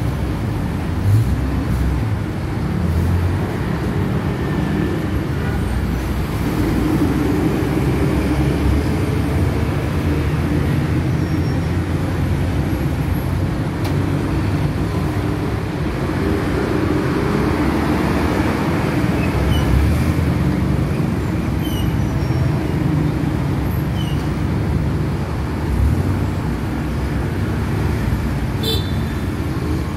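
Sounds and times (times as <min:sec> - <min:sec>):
vehicle engines rumbling: 0:00.0 - 0:29.9.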